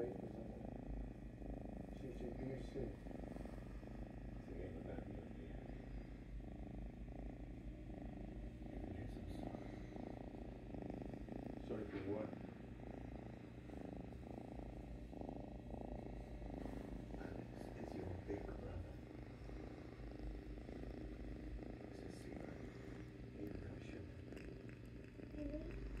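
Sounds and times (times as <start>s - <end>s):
kitten purring: 0.0s - 26.0s.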